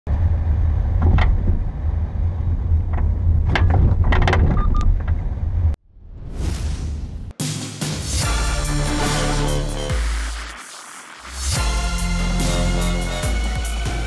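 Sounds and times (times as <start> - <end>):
car driving low rumble: 0.1 - 5.8
suspension clunks and bangs: 0.8 - 1.8, 2.6 - 5.4
whoosh: 5.8 - 7.4.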